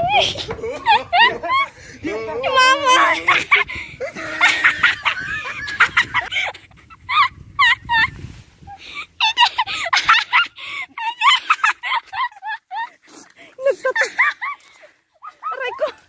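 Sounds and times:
high-pitched cackling laughter: 0:00.0 - 0:01.7, 0:02.5 - 0:08.2, 0:09.1 - 0:13.0, 0:15.2 - 0:16.0.

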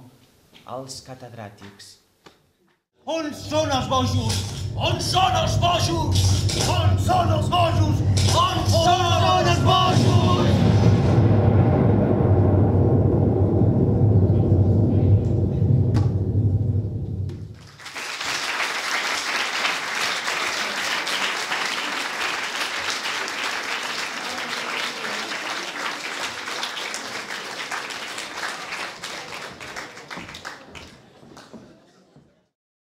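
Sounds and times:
low rumble: 0:03.5 - 0:17.6
audience applauding: 0:17.5 - 0:31.8.

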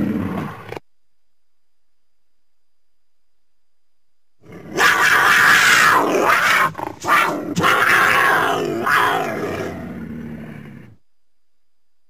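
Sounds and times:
cougar raspy calls: 0:04.4 - 0:11.0.

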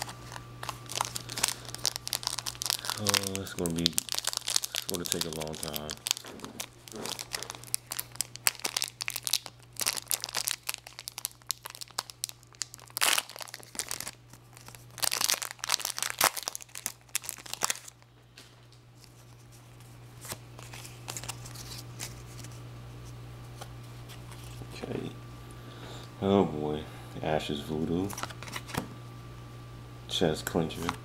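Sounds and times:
foil wrappers crinkling and tearing: 0:00.0 - 0:18.0, 0:19.0 - 0:22.6, 0:28.0 - 0:28.8
steady low hum: 0:00.0 - 0:31.0.

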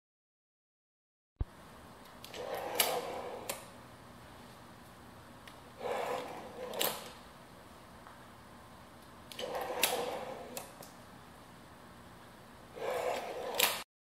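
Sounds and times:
drawer slide ball bearings rolling: 0:02.2 - 0:03.7, 0:05.8 - 0:07.2, 0:09.3 - 0:10.8, 0:12.7 - 0:13.8
drawer slide sharp click: 0:02.3 - 0:03.6, 0:12.8 - 0:13.8.

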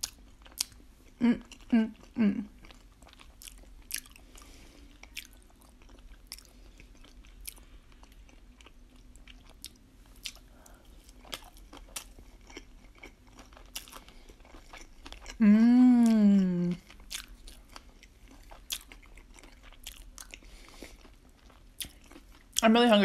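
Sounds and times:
quiet chewing: 0:00.0 - 0:22.6.

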